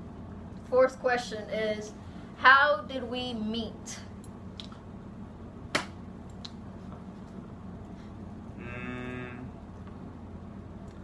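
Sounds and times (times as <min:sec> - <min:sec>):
person humming: 0:08.5 - 0:09.6.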